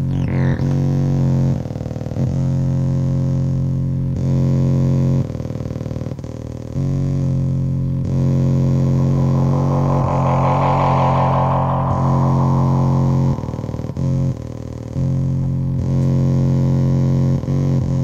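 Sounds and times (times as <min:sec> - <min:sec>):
synthesizer low drone: 0:08.4 - 0:14.9.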